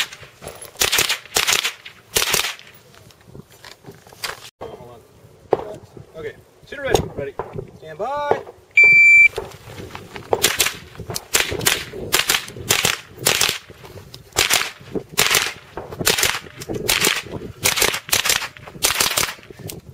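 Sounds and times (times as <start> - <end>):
rifle shots: 0.0 - 2.8, 10.3 - 13.7, 14.4 - 19.5
shot timer beep: 8.8 - 9.3.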